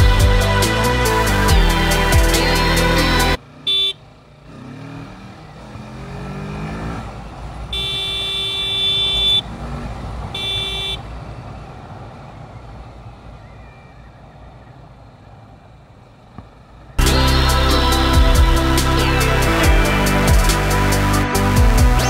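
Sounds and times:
motorcycle engine accelerating: 0:01.4 - 0:08.1
wind and road noise: 0:03.4 - 0:17.0
vehicle horn: 0:03.6 - 0:04.0, 0:07.7 - 0:09.5, 0:10.3 - 0:11.1.

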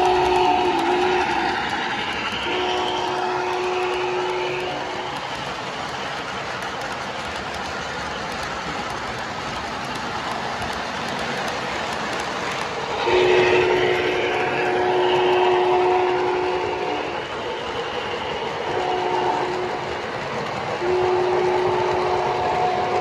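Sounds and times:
model train steam whistle: 0:00.0 - 0:05.2, 0:12.9 - 0:20.0, 0:20.8 - 0:23.0
train rumbling on track: 0:00.0 - 0:23.0.

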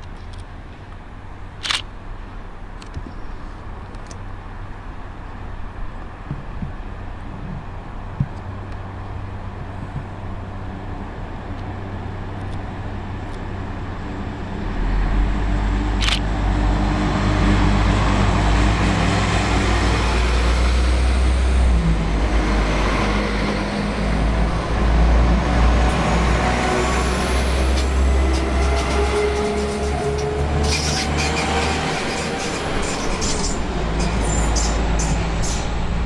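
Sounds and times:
diesel engine drone: 0:00.0 - 0:36.0
wheels hissing on rails: 0:19.2 - 0:36.0.

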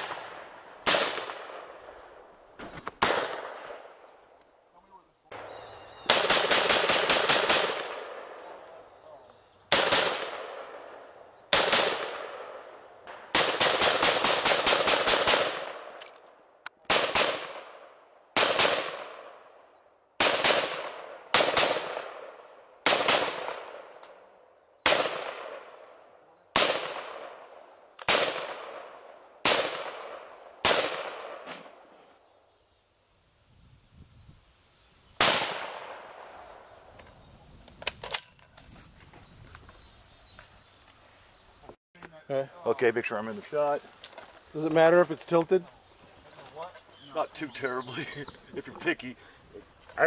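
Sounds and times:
rifle gunfire with echo: 0:00.0 - 0:01.9, 0:06.1 - 0:08.6, 0:09.7 - 0:16.0, 0:16.9 - 0:19.6, 0:20.2 - 0:23.9, 0:24.8 - 0:25.7, 0:26.6 - 0:31.5, 0:35.2 - 0:36.5.

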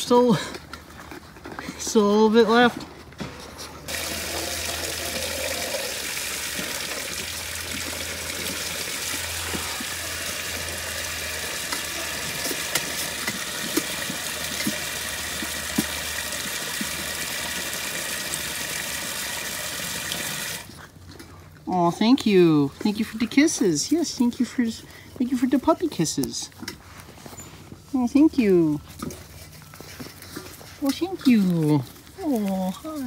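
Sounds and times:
puppies feeding clicks on bowl: 0:11.6 - 0:17.6.

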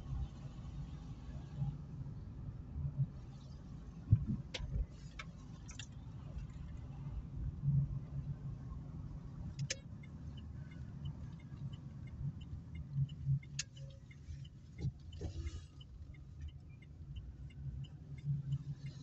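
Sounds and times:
car engine and tyre rumble: 0:00.0 - 0:19.0
turn indicator ticking: 0:04.0 - 0:06.9, 0:09.2 - 0:19.0.

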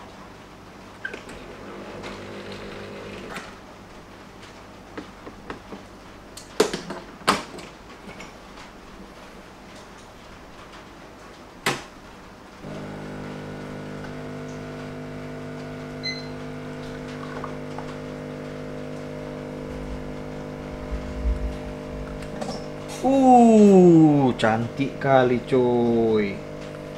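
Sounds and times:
espresso machine pump humming: 0:01.3 - 0:03.4, 0:12.6 - 0:26.9.

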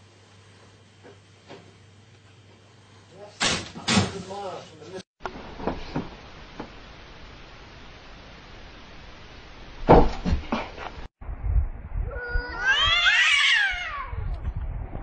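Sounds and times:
loud thumps: 0:09.8 - 0:10.5
cats yowling: 0:12.1 - 0:14.3.

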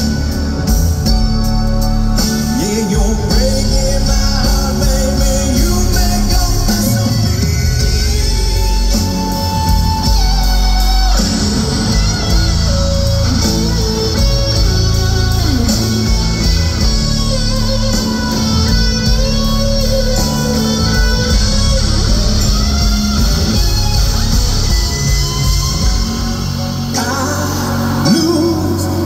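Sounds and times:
bass guitar: 0:00.0 - 0:29.0
drums: 0:00.0 - 0:29.0
electric guitar: 0:00.0 - 0:29.0.

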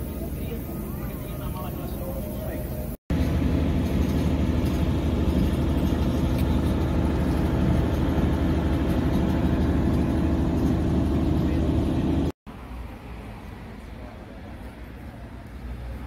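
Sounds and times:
engine idling: 0:03.1 - 0:12.3.

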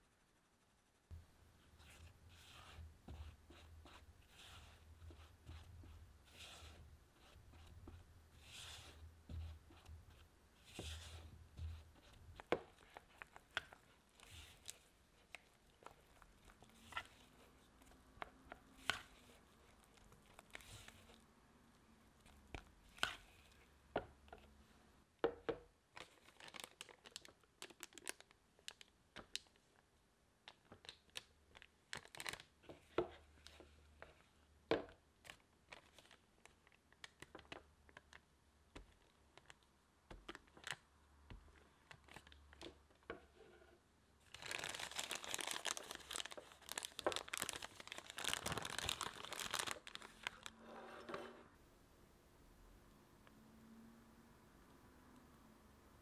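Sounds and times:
plastic piping bag crinkling: 0:01.6 - 0:21.2, 0:25.9 - 0:29.5, 0:30.8 - 0:32.6, 0:44.2 - 0:50.5
spatula scraping and tapping bowl: 0:01.7 - 0:14.7.

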